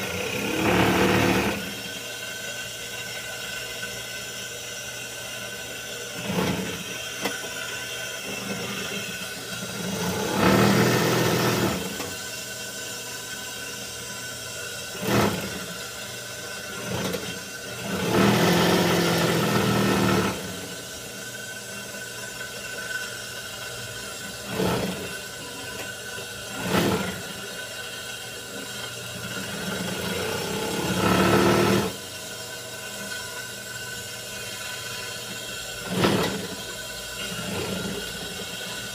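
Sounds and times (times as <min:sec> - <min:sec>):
sewing machine motor humming: 0:00.0 - 0:01.8, 0:09.8 - 0:12.1, 0:17.8 - 0:20.6, 0:29.4 - 0:32.0.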